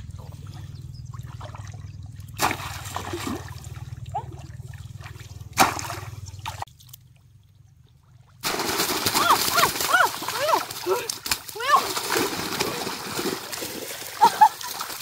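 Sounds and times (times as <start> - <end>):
low steady hum: 0.0 - 15.0
splashes of pond water: 0.1 - 15.0
fish thrashing in water: 1.2 - 4.0, 8.4 - 15.0.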